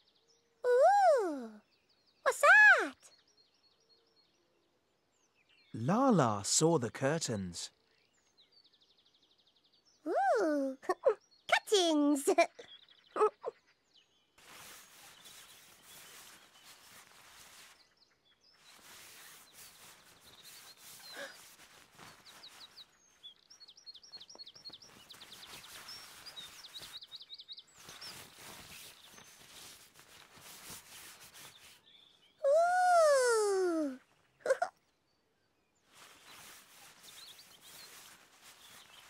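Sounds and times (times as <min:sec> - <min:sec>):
bird chirping: 0:11.0 - 0:39.0.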